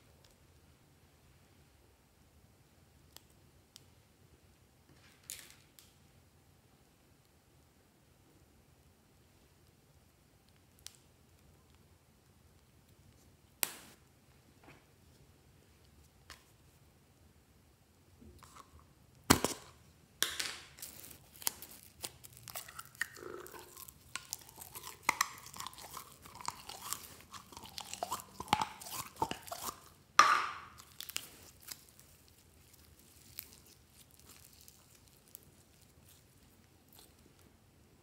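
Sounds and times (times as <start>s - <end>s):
slime clicking and crackling: 19.3s - 37.4s.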